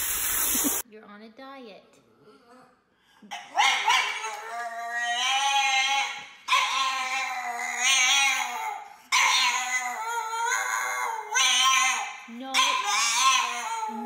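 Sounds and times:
dog howling: 3.6s - 14.0s.

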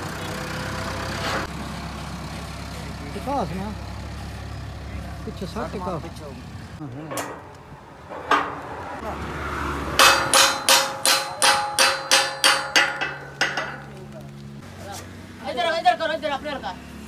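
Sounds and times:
hammer striking steel pin: 10.0s - 13.9s.

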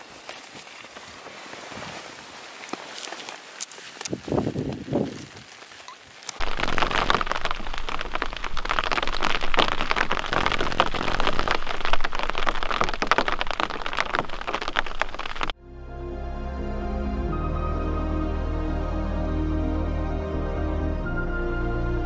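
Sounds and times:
rain pattering on a tent: 0.0s - 15.6s.

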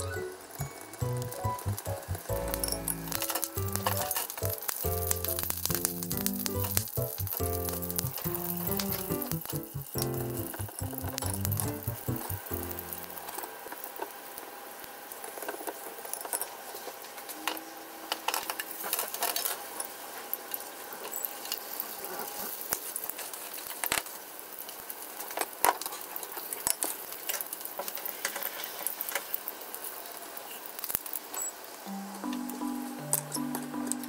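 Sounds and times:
food sizzling in oil: 0.0s - 14.4s, 19.8s - 23.7s, 26.0s - 34.0s.

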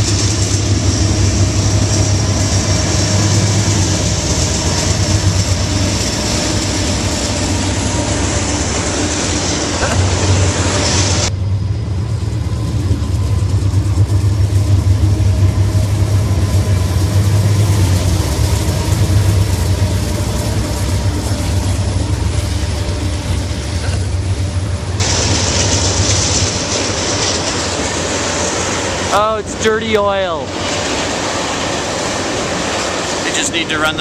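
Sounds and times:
diesel locomotive engine drone: 0.0s - 34.0s
rail noise: 0.0s - 34.0s.

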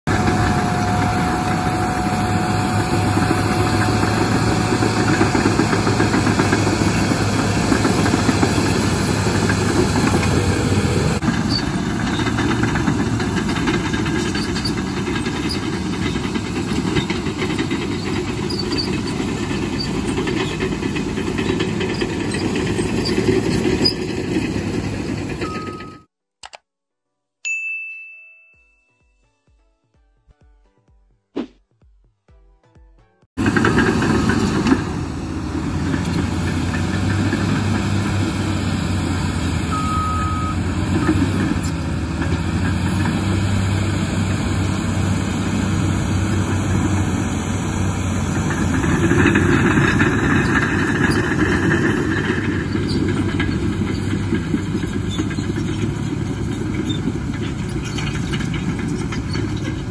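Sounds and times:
bulldozer diesel engines under load: 0.0s - 26.1s, 33.4s - 59.9s
short ringing chime: 25.4s - 26.1s, 27.5s - 29.3s
click: 26.4s - 26.6s.

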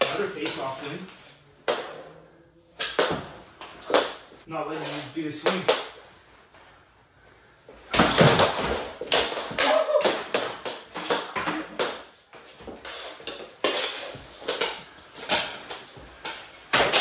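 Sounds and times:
plastic hockey sticks clacking: 0.0s - 2.1s, 8.0s - 17.0s.

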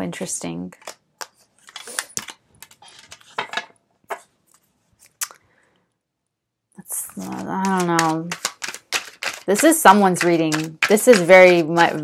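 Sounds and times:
cards snapping and rustling: 7.2s - 9.6s.

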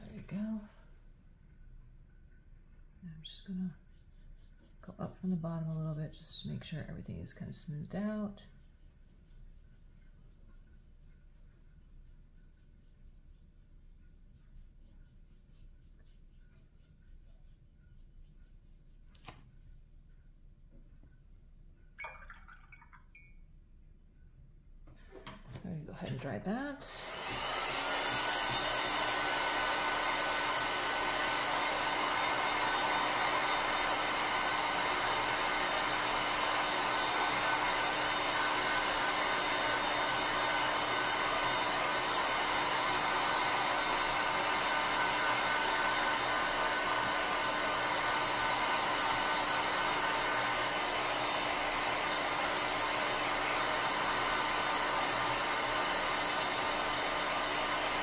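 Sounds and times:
hot-air dryer blowing: 26.1s - 58.0s.

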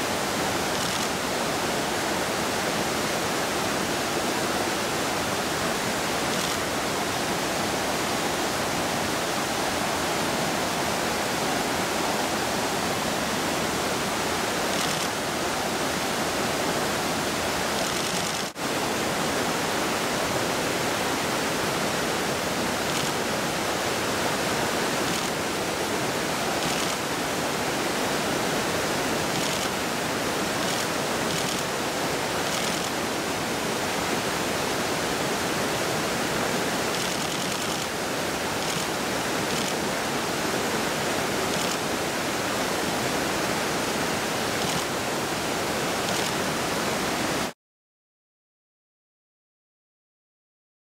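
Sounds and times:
fast-flowing river water: 0.0s - 47.5s.

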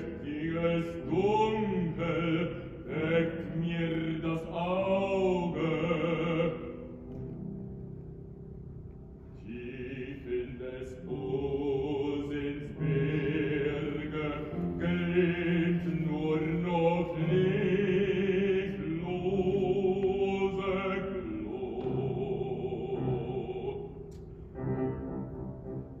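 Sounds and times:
operatic tenor singing: 0.0s - 7.0s, 9.4s - 24.1s
piano accompaniment: 0.0s - 26.0s.

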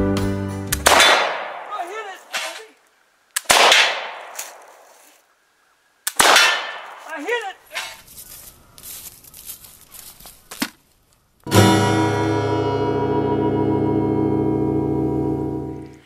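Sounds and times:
pistol shots with echo: 0.8s - 1.8s, 3.4s - 4.8s, 6.1s - 7.1s.

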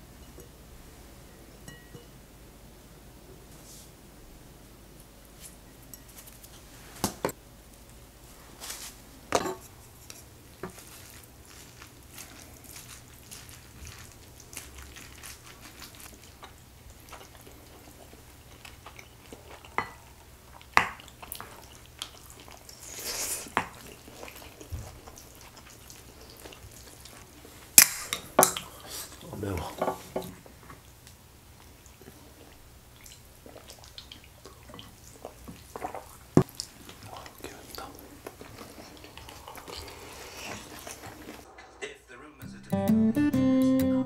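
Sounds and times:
utensils clinking on ceramic bowl: 1.6s - 2.1s.

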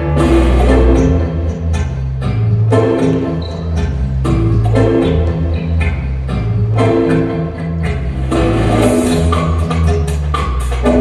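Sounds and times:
instrumental music with deep bass: 0.0s - 11.0s.

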